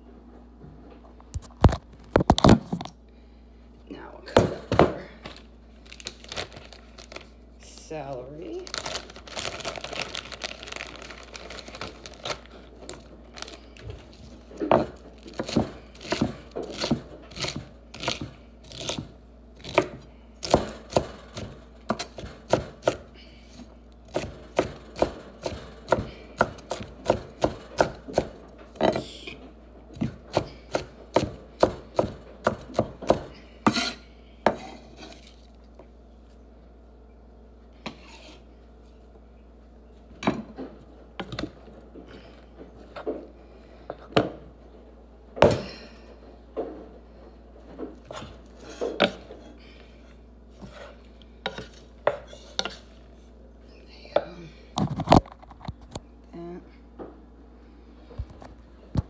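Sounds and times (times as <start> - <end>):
knife chopping on wooden board: 14.7 - 23.0, 24.1 - 29.0, 30.0 - 34.7.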